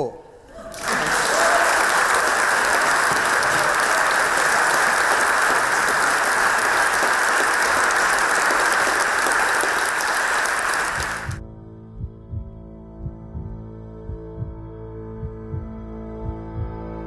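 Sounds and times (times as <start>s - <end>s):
audience applauding: 0.6s - 11.4s.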